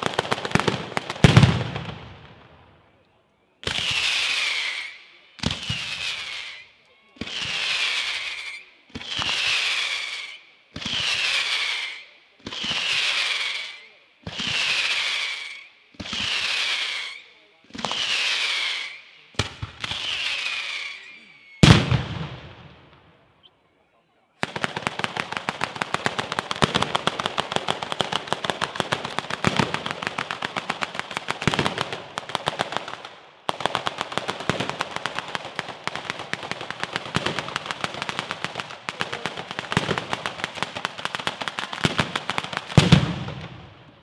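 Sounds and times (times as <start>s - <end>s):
firework whistle: 3.6s - 21.9s
rapid firecracker reports: 37.0s - 43.1s.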